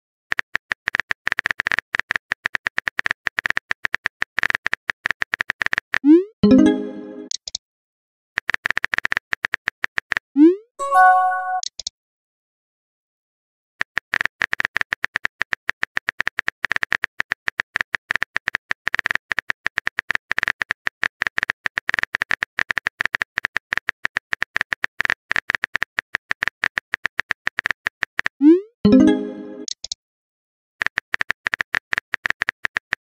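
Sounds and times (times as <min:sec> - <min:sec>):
message sent swoop and chime: 0:06.4 - 0:07.3, 0:10.8 - 0:11.6, 0:28.9 - 0:29.7
phone keyboard typing clicks: 0:28.9 - 0:30.0.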